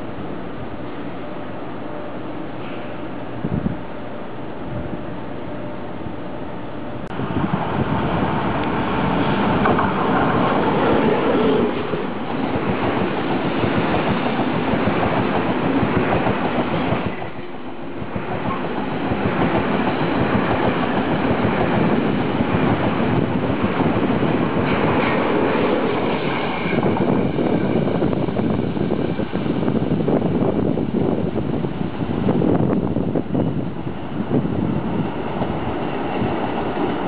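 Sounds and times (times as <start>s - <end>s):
train carriages clattering on rails: 8.6s - 28.5s.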